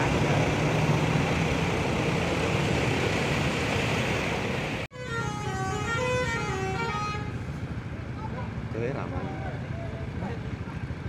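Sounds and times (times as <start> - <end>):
road traffic passing: 0.0 - 11.0
truck engine and tyres: 0.0 - 11.0
bus horn playing melody: 4.9 - 7.6.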